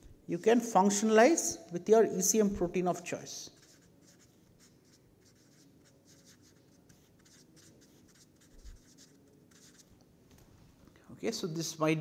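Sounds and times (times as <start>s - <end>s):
marker scratching on paper: 3.5s - 9.9s.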